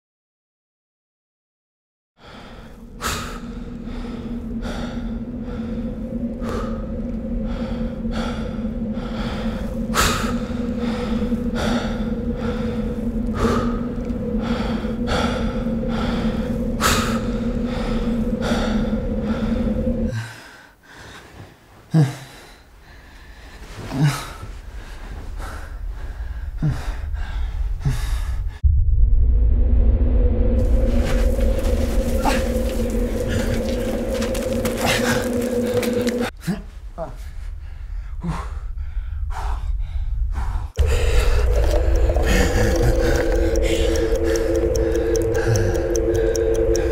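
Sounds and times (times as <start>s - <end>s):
steady low hum: 2.2s - 20.3s, 24.4s - 46.9s
gasping breaths: 2.2s - 28.6s, 37.6s - 46.9s
heavy panting breaths: 2.2s - 28.6s, 37.2s - 46.9s.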